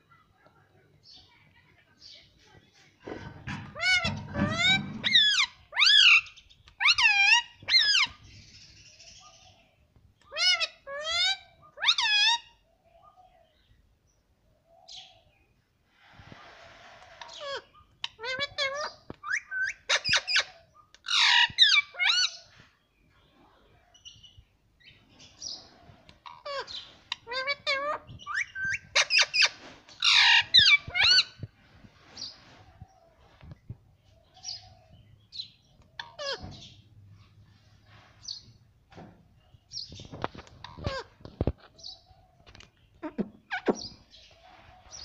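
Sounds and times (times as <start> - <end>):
parakeet squawking: 3.5 - 6.2, 26.4 - 31.3.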